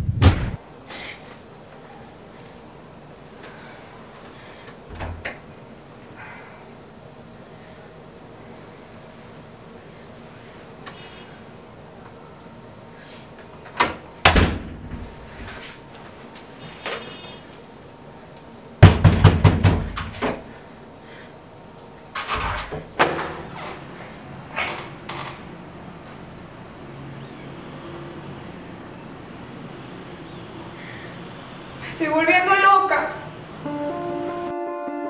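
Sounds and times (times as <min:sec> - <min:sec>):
knocking on wooden door: 0:18.8 - 0:20.0.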